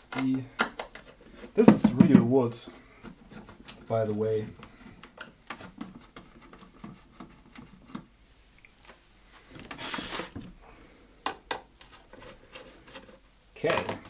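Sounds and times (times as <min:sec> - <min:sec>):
scraping rustle: 0:09.3 - 0:10.5, 0:11.8 - 0:13.3.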